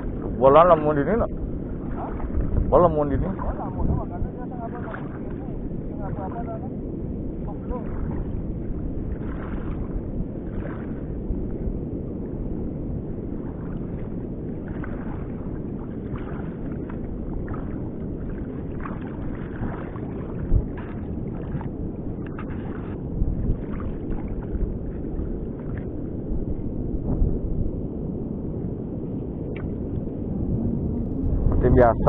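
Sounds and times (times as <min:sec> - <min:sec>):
shallow seawater sloshing: 0:00.0 - 0:27.6
wind buffeting microphone: 0:00.0 - 0:32.0.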